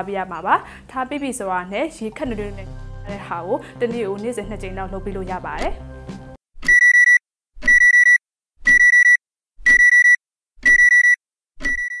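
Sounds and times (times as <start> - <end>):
alarm clock beeping: 6.6 - 12.0.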